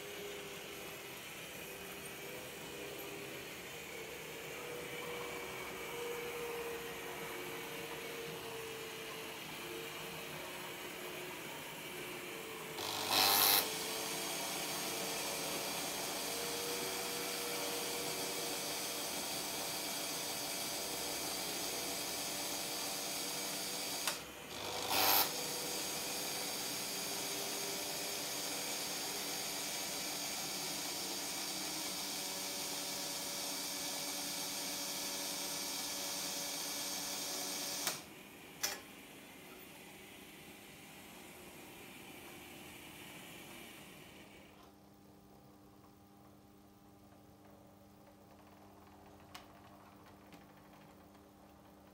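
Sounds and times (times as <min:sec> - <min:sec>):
electric drive whirring: 0:00.0 - 0:39.4
loud motor buzz: 0:12.8 - 0:16.3, 0:24.0 - 0:26.0.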